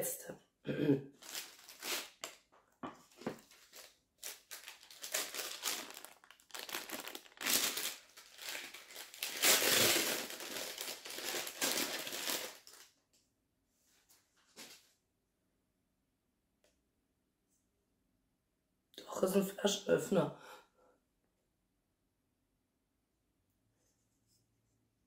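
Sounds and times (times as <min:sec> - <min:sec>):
paper bag crinkling: 0:01.2 - 0:02.4, 0:03.1 - 0:12.9.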